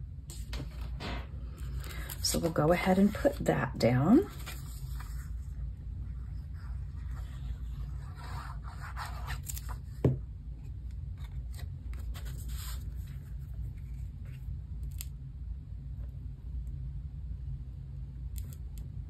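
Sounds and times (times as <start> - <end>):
steady low hum: 0.0 - 19.0
paper rasping and rustling: 4.1 - 10.0, 11.2 - 14.2.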